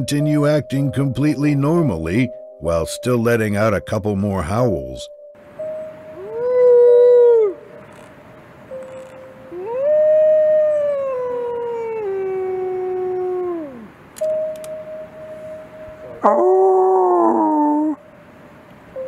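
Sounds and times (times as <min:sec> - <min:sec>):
wolf howling: 0:06.2 - 0:07.8, 0:09.5 - 0:14.0, 0:16.2 - 0:18.0.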